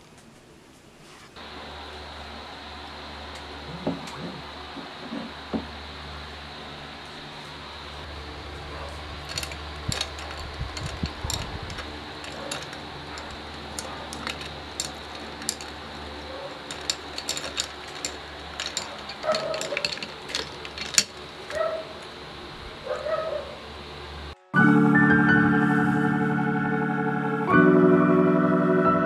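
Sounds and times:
steady low hum: 1.4 - 24.4.

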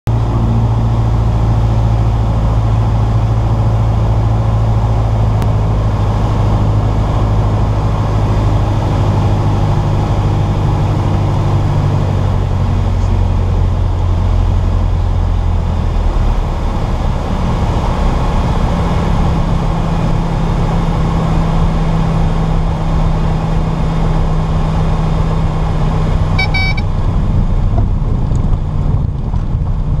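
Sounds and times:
propeller plane engine: 0.1 - 30.0
wind and airframe noise: 0.1 - 30.0
brief high tone: 26.4 - 26.9.

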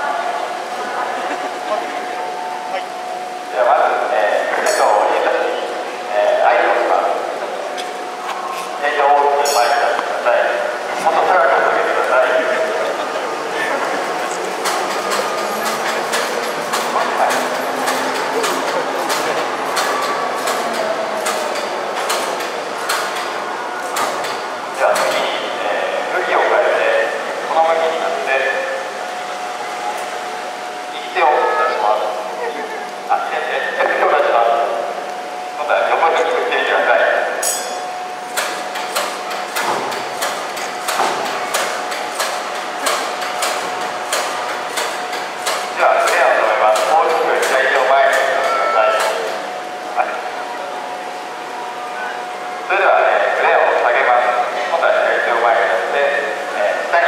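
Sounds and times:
overhead crane running: 0.0 - 57.0
sharp clicks and clanks: 14.3 - 25.3, 38.3 - 48.3
sharp knocks: 38.4 - 48.2.

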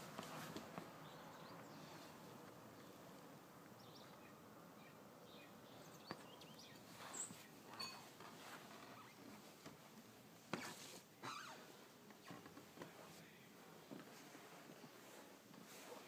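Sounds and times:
faint bird chirps: 3.8 - 8.0.

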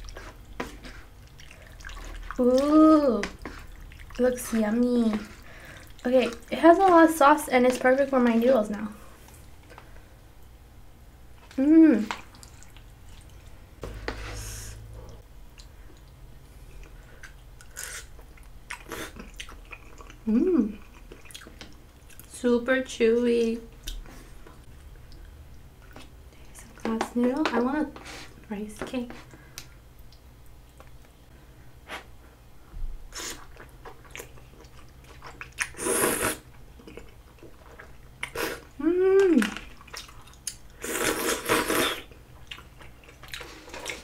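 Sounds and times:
chewing: 11.4 - 14.2, 15.0 - 22.3, 33.2 - 35.8, 36.5 - 44.0
noodle slurp: 35.5 - 36.5, 40.8 - 42.1.

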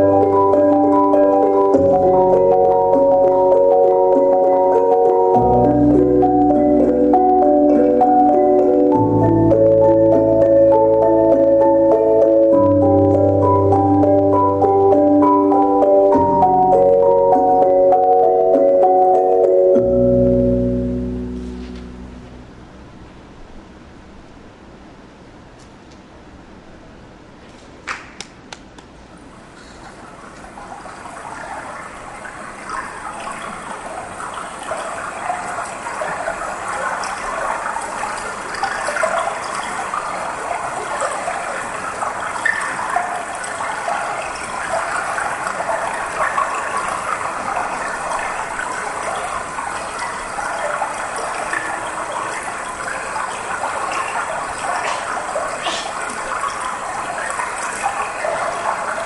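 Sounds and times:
rushing water: 29.2 - 59.0.

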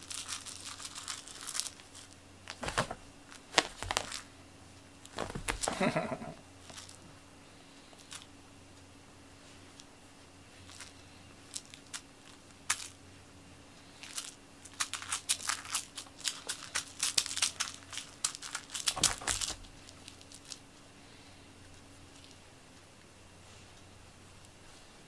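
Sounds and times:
plastic wand crinkling: 0.0 - 4.3, 5.0 - 7.0, 10.6 - 13.0, 13.8 - 20.6.

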